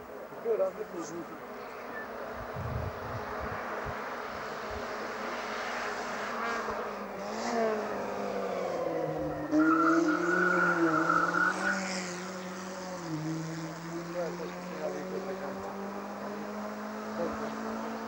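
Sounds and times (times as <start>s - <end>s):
race car engine revving: 1.4s - 18.0s
tire squeal: 8.9s - 12.7s.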